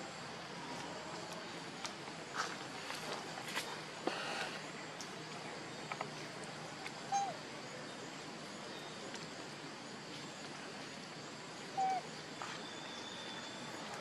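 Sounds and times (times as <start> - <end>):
steady outdoor hiss: 0.0 - 14.0
animal call with two notes: 7.1 - 7.4.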